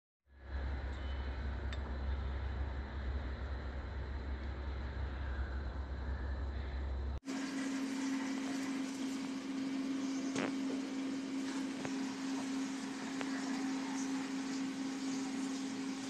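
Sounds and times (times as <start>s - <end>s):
mechanical hum: 0.3s - 16.0s.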